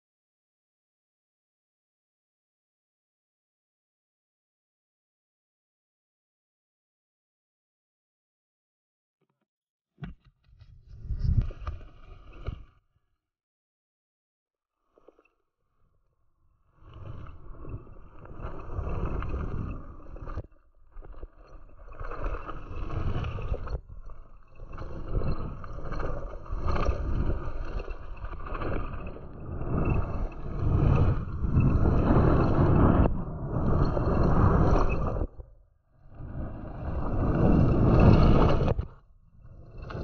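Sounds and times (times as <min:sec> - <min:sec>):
wind on microphone: 0:10.6 - 0:11.9.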